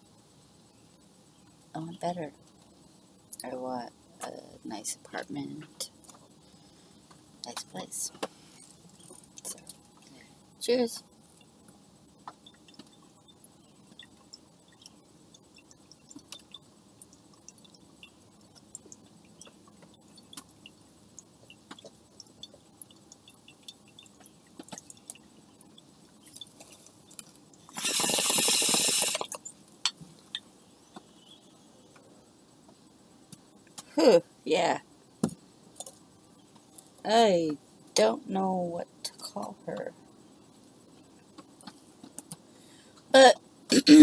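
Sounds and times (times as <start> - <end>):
small clicks and ticks: 2.4 - 3.6, 5.6 - 10.4, 11.0 - 33.9, 35.1 - 37.1, 39.1 - 43.1
water bong bubbling: 27.7 - 29.5.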